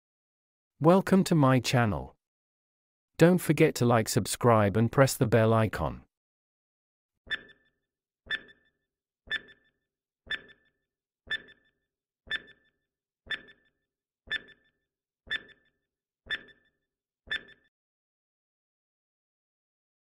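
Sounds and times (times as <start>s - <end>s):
timer ticking: 7.3s - 17.7s.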